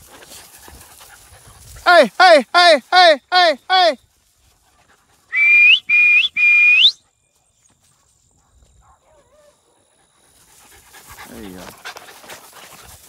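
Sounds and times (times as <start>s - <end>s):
short whistle blasts: 5.3s - 7.0s.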